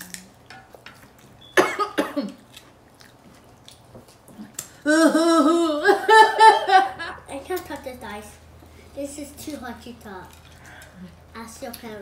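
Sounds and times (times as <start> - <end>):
woman coughing: 1.6 - 2.4
woman wordless ooh: 4.8 - 6.4.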